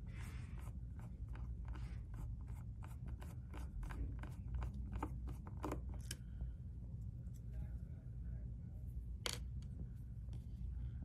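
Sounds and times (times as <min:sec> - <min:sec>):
steady low rumble: 0:05.8 - 0:11.0.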